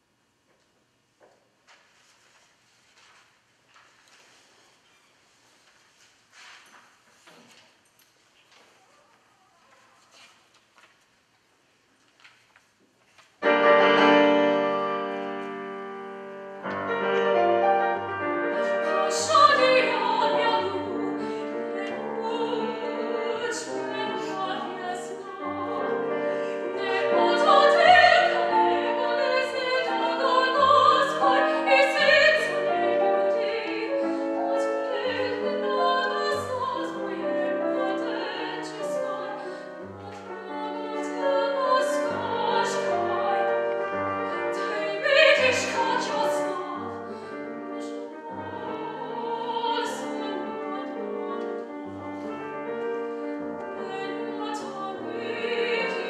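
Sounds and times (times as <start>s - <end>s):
woman singing operatically: 18.8s - 43.4s, 44.5s - 47.0s, 47.6s - 51.5s, 53.8s - 56.0s.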